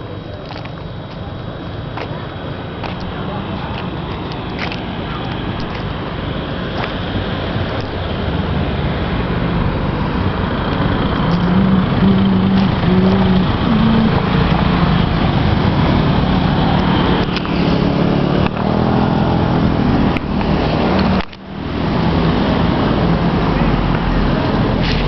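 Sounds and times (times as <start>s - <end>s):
road traffic rumble: 0.0s - 25.0s
engine note rising in pitch: 10.9s - 20.0s.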